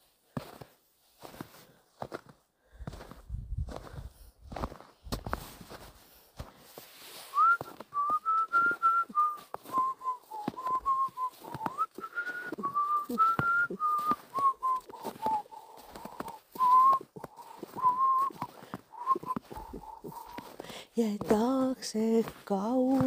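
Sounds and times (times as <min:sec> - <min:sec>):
person whistling a slow melody: 0:07.2 - 0:20.6.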